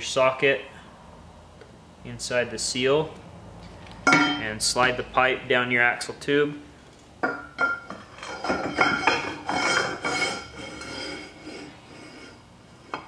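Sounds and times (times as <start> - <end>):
metallic ringing: 4.0 - 4.8
steel pipe scraping inside tube: 9.1 - 12.5.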